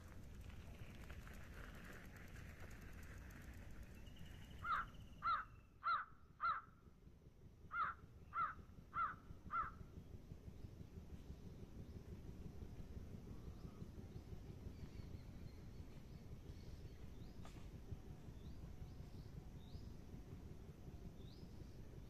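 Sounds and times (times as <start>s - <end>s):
faint outdoor background hiss: 0.0s - 22.0s
crow cawing: 4.6s - 6.7s, 7.7s - 9.8s.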